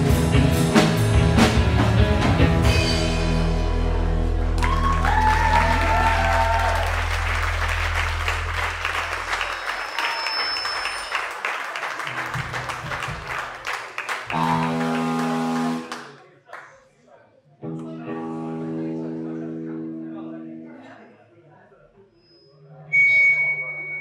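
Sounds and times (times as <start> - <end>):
live band closing notes: 0.0 - 16.2
audience applause: 4.6 - 16.6.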